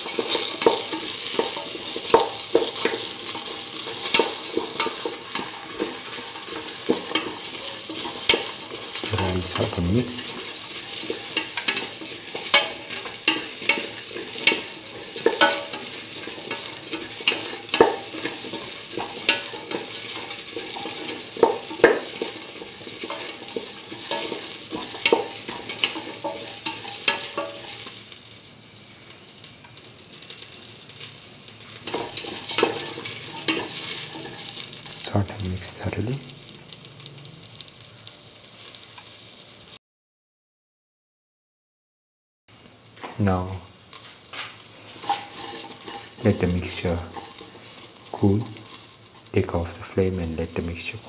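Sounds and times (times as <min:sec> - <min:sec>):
spatula scraping and knocking pan: 0:00.0 - 0:27.9, 0:31.8 - 0:34.7, 0:44.9 - 0:48.9
vegetables sizzling in oil: 0:00.0 - 0:39.8, 0:42.5 - 0:51.0.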